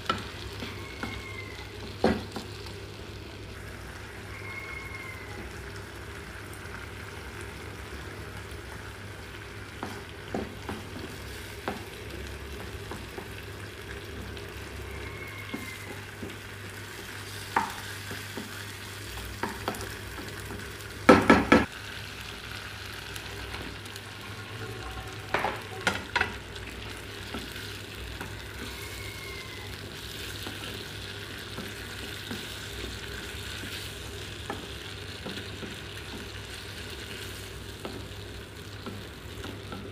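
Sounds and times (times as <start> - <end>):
food sizzling in a frying pan: 0.0 - 39.9
utensil knocking against a pan: 21.1 - 21.7.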